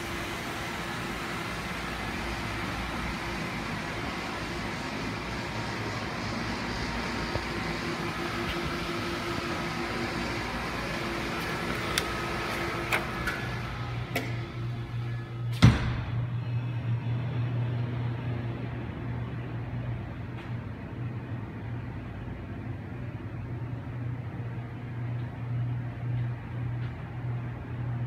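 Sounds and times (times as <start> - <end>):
air conditioning hum: 0.0 - 28.0
door thudding shut: 15.5 - 16.2.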